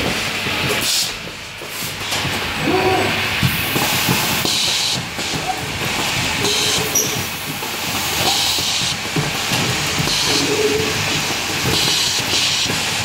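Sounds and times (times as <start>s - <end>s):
actuators clicking and clacking: 0.0s - 13.0s
compressed air hissing: 2.7s - 5.4s.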